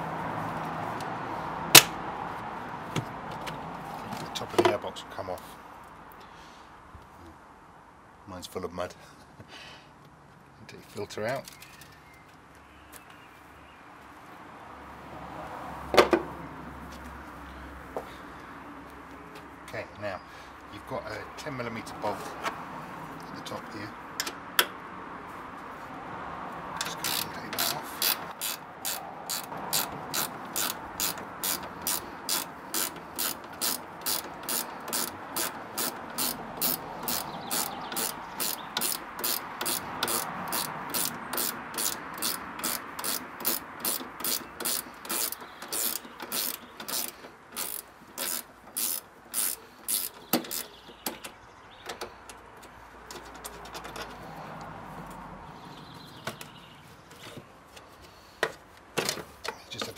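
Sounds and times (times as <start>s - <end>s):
ratchet spanner clicking: 26.8s - 51.3s.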